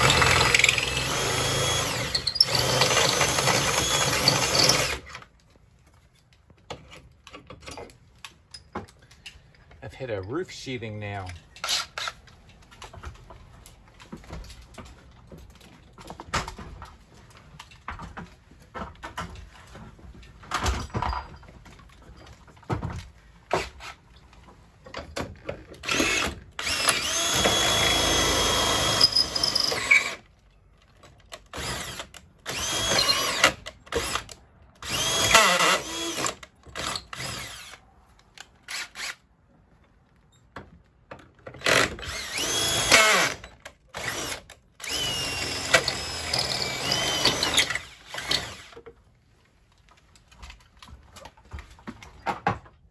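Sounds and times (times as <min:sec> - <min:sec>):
cordless drill boring wood: 0:00.0 - 0:05.1, 0:25.8 - 0:30.2, 0:31.5 - 0:37.8, 0:38.7 - 0:39.2, 0:41.6 - 0:48.8
tools clicking and knocking: 0:02.0 - 0:09.8, 0:11.2 - 0:30.2, 0:40.4 - 0:49.0.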